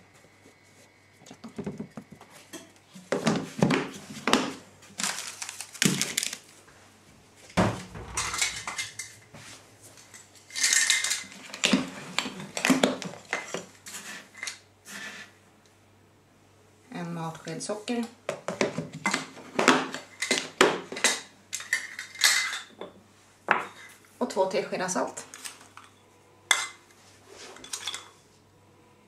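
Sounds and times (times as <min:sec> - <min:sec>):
heavy thump: 0:07.6 - 0:08.8.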